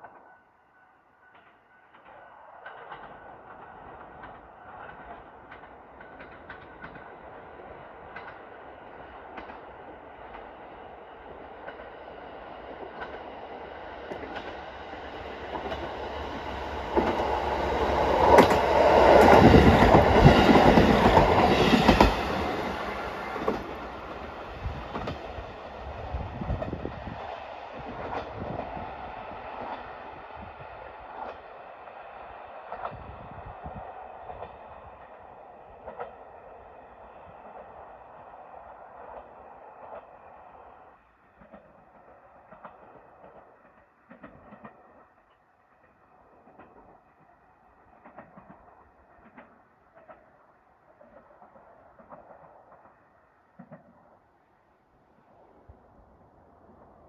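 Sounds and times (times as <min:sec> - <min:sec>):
diesel train passing: 0:00.0 - 0:57.0
wheels clicking over rail joints: 0:01.4 - 0:07.2, 0:41.4 - 0:47.3, 0:47.9 - 0:54.2.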